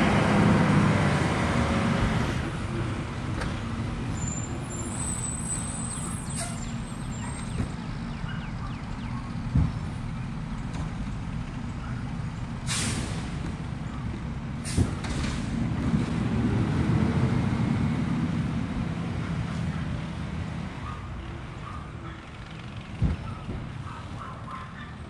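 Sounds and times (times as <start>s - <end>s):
distant truck diesel engine: 0.0s - 25.0s
air brake hisses: 12.6s - 13.4s.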